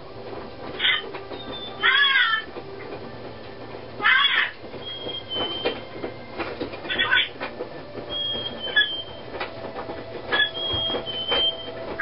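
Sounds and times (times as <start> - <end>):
parrot harsh squawk: 4.0 - 4.5
parrot squeaky whistles: 8.1 - 9.2, 10.3 - 11.7.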